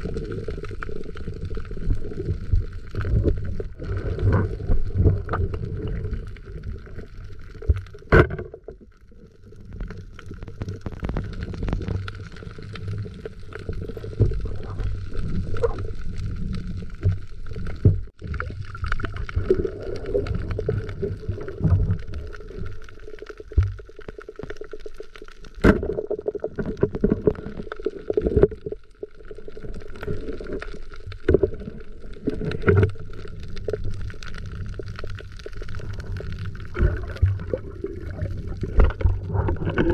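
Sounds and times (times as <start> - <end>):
muffled underwater sloshing: 0.0 - 39.9.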